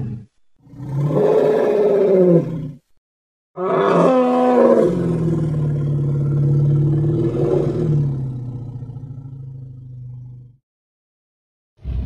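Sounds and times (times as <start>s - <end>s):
dinosaur roar: 0.0s - 2.8s, 3.6s - 10.5s
low steady growl: 4.7s - 10.6s.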